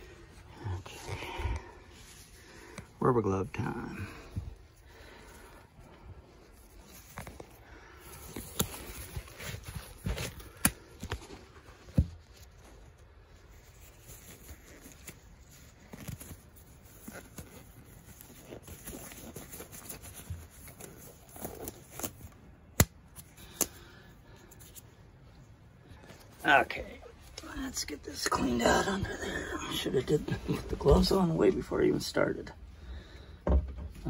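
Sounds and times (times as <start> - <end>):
rubber gloves stretching and rustling: 0.0 - 34.0
glove snaps: 10.3 - 11.2, 22.0 - 24.0.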